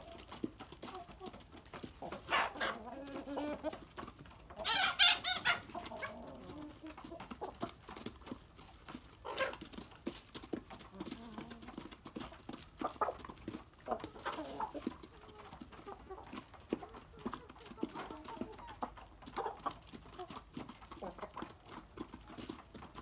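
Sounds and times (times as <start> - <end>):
chickens clucking and squawking: 0.0 - 23.0.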